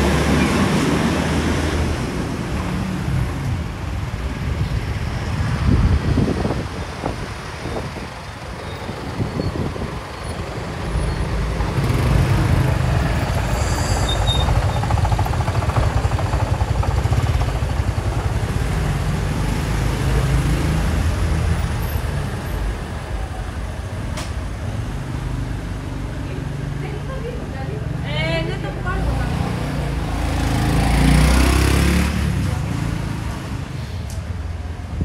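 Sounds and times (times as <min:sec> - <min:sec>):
truck engine running: 0:11.6 - 0:19.6.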